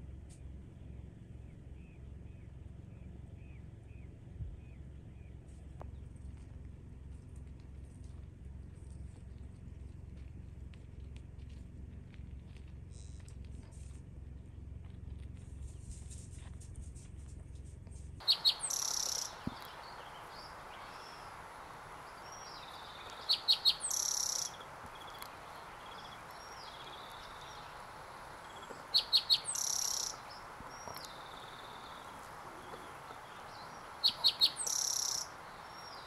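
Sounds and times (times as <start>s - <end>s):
soft whistled bird calls: 18.2s - 36.0s
songbird singing with trill: 18.2s - 36.0s.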